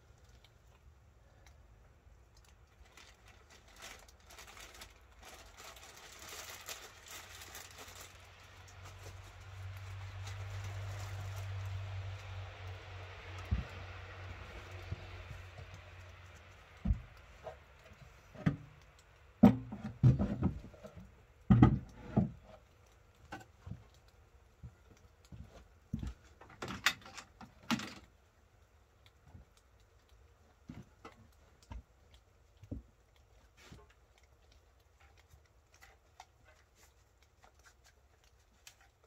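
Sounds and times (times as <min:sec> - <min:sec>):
light clicks and taps: 0:12.0 - 0:39.0
wooden knocks and thumps: 0:16.8 - 0:17.6, 0:19.4 - 0:22.6.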